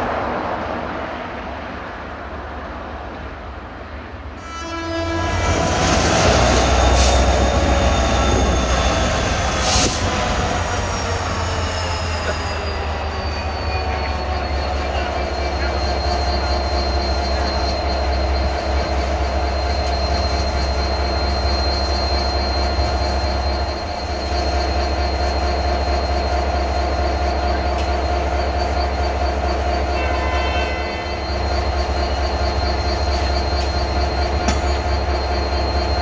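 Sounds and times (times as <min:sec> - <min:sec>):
locomotive engine running: 0:05.1 - 0:30.0.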